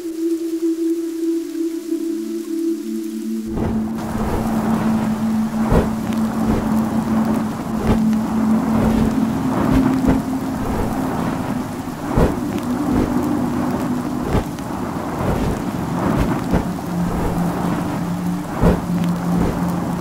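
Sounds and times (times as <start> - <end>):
heavy rain: 0.0 - 20.0
thunder: 3.5 - 17.7, 18.6 - 19.7
sharp cracks or drips: 3.7 - 14.7.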